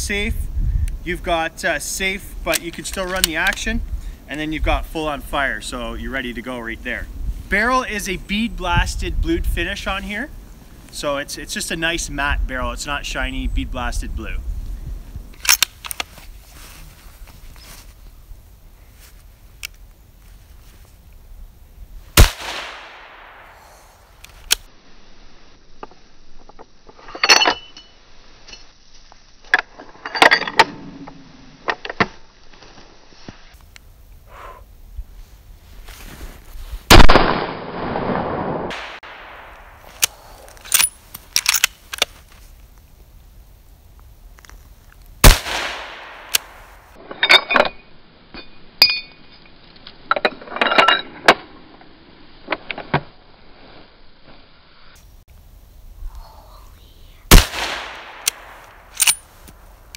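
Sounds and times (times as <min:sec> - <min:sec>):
rifle shots: 0:22.2 - 0:23.6, 0:36.9 - 0:39.9, 0:45.2 - 0:46.7, 0:57.3 - 0:59.2.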